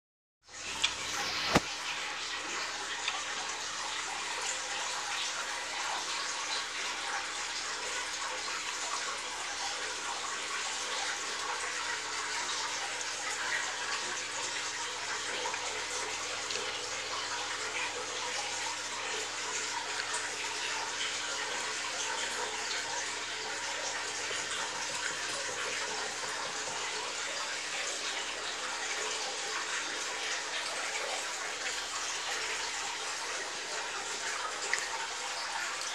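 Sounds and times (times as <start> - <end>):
water running and splashing: 0.5 - 35.9.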